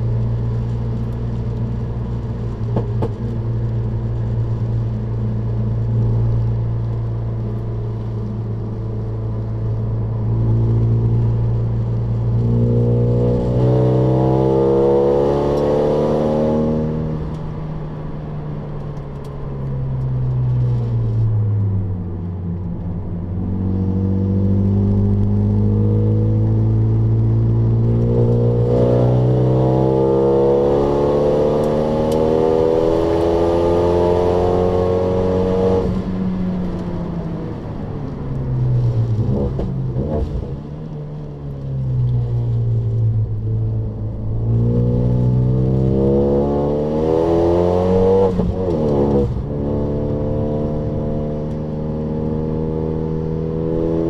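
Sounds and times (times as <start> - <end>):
car engine accelerating: 0.0 - 54.0.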